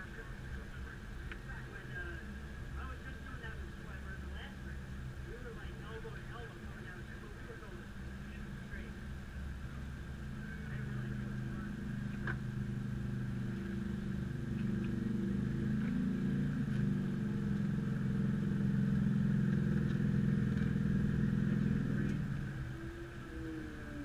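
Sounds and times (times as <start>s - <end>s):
small motorcycle engine idling: 3.8s - 24.0s
scooter engine: 8.0s - 24.0s.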